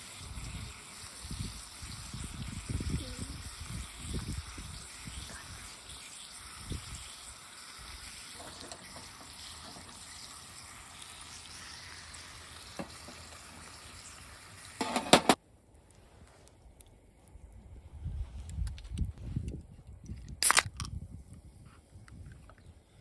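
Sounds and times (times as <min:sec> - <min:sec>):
steak sizzling on a grill: 0:00.0 - 0:15.4.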